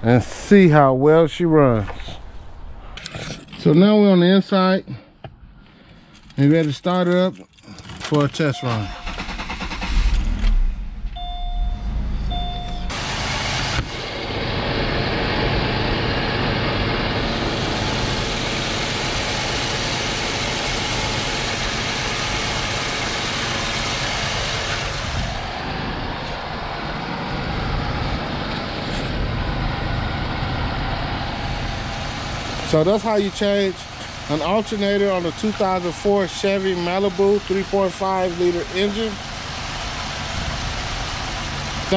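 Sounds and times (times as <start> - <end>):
car engine cranking and idling: 5.3 - 41.9
brief chime: 11.1 - 12.9.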